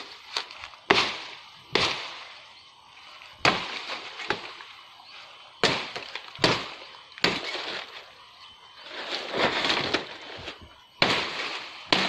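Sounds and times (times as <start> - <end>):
machete chopping brush: 0.0 - 2.4, 3.4 - 4.6, 5.6 - 8.0, 9.1 - 12.0
dry leaves and twigs rustling: 0.0 - 12.0.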